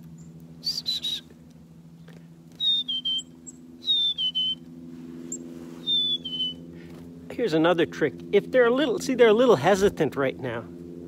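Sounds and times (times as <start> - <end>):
steady low hum: 0.0 - 11.0
bird singing two-note whistle: 0.6 - 1.3, 2.6 - 4.6, 5.8 - 6.6
high whistled bird note: 2.6 - 4.6, 5.8 - 6.6.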